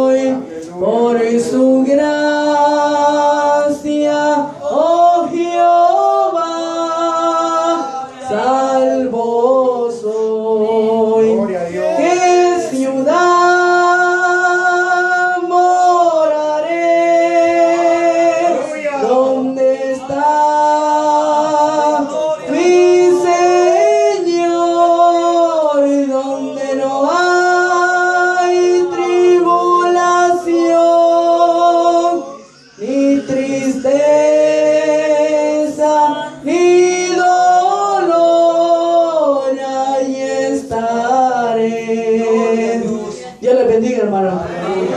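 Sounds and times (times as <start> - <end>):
boy singing into a microphone: 0.0 - 44.9
voices singing along: 0.0 - 44.9.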